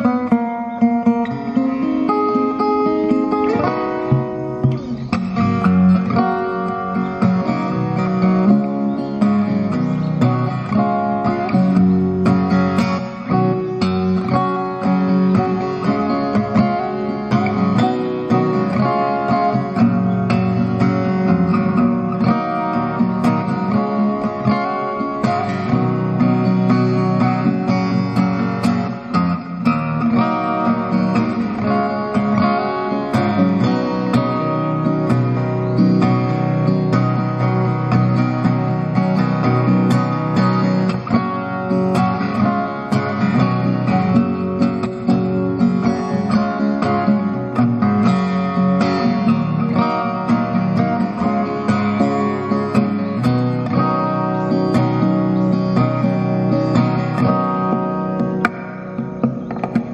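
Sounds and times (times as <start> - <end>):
fingerstyle acoustic guitar: 0.0 - 59.9.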